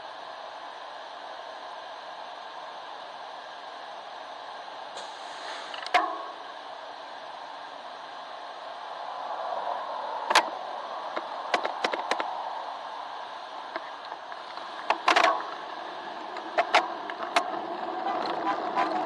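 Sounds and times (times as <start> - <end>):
muffled traffic hum: 0.0 - 19.0
sharp clicks and knocks: 5.7 - 6.4, 11.1 - 12.3, 13.7 - 15.7, 16.4 - 19.0.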